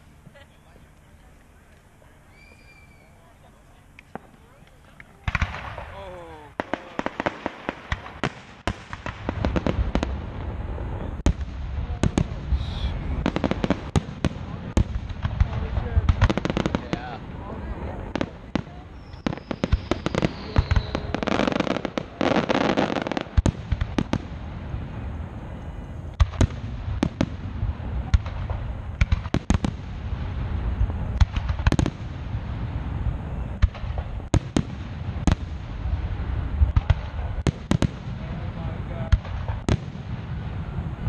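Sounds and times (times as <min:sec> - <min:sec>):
firework whistle: 0:02.2 - 0:03.3, 0:18.8 - 0:23.2
fireworks booms and bangs: 0:04.1 - 0:41.0
low rumble: 0:09.0 - 0:19.2.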